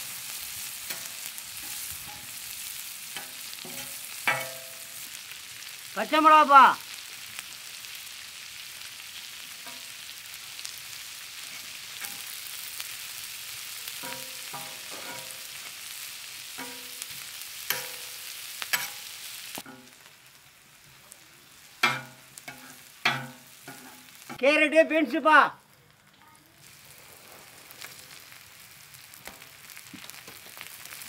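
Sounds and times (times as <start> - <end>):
metal spatula scraping iron griddle: 0.0 - 5.0, 11.4 - 12.6, 13.9 - 15.6, 16.6 - 20.0, 21.8 - 24.3
vegetables sizzling in oil: 0.0 - 31.0.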